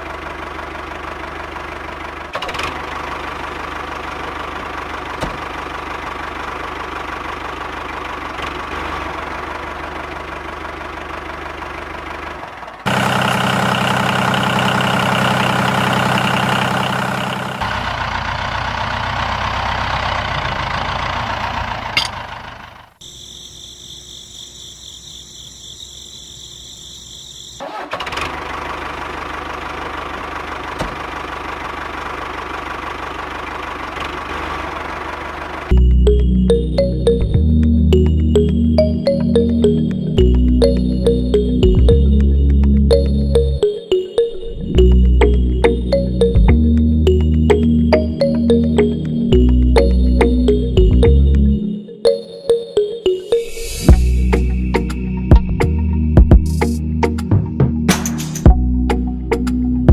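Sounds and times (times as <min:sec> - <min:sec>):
toy tractor engine drone: 0:00.0 - 0:24.8, 0:25.5 - 0:35.9.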